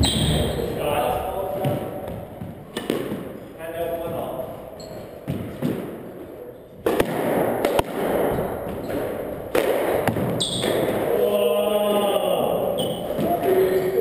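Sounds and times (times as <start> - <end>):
shoe squeak on wooden floor: 0.0 - 0.8, 4.7 - 5.3, 10.4 - 10.8, 12.8 - 13.4
squash ball cracks echoing: 1.4 - 4.3, 5.2 - 11.4.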